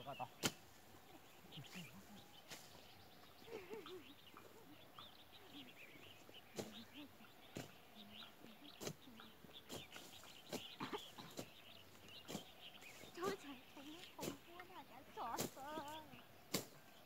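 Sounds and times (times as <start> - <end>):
birds chirping: 0.0 - 17.0
hoes chopping into soil: 0.3 - 0.8, 6.4 - 13.3, 15.4 - 15.9, 16.5 - 16.9.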